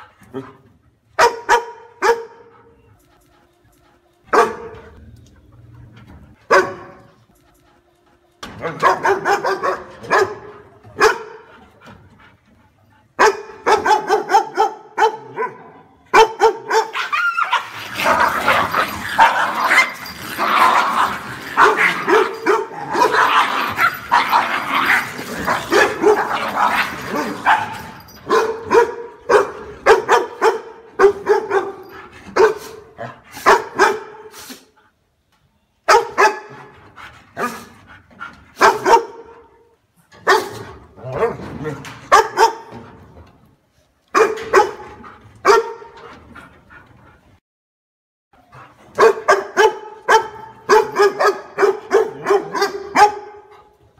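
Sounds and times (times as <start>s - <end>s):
dog barking: 1.2s - 2.7s, 4.3s - 4.8s, 6.5s - 7.2s, 8.6s - 11.5s, 13.2s - 19.9s, 20.9s - 25.0s, 25.6s - 34.3s, 35.9s - 36.7s, 38.6s - 39.5s, 40.2s - 40.6s, 42.1s - 42.8s, 44.1s - 45.9s, 49.0s - 53.5s.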